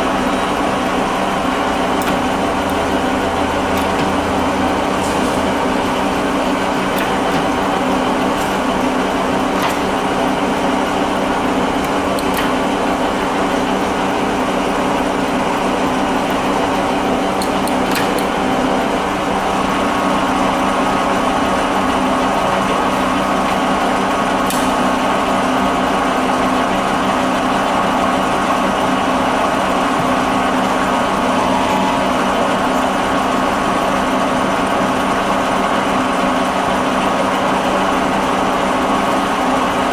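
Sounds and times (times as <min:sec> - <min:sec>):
lathe humming and whining: 0:00.0 - 0:39.9
lever clicks: 0:02.0 - 0:02.9, 0:11.8 - 0:12.6, 0:17.4 - 0:18.4.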